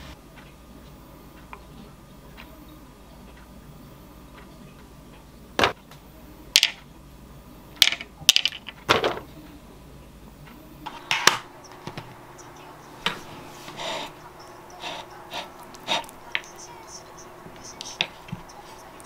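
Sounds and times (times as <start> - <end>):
almonds clicking on ceramic plate: 14.0 - 19.0.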